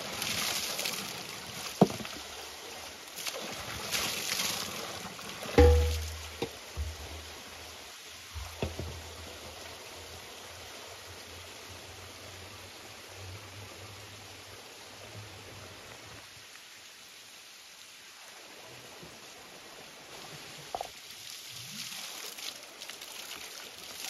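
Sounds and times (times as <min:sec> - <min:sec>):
water running onto stone: 0:03.2 - 0:07.2
metal vessel knocks: 0:05.6 - 0:07.1, 0:08.4 - 0:09.0.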